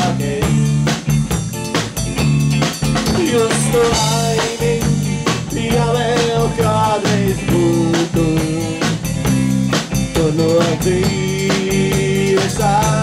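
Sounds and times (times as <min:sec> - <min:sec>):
person singing: 0:00.0 - 0:00.8, 0:03.1 - 0:09.0, 0:10.1 - 0:13.0
steady drum beat: 0:00.0 - 0:13.0.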